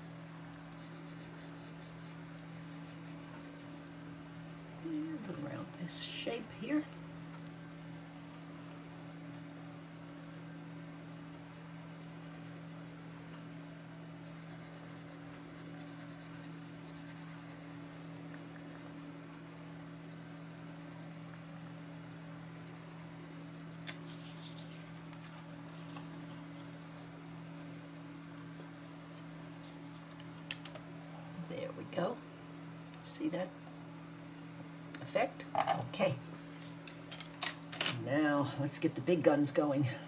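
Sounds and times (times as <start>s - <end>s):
pencil scratching on paper: 0.0s - 6.0s, 11.0s - 26.6s
steady low hum: 0.0s - 40.0s.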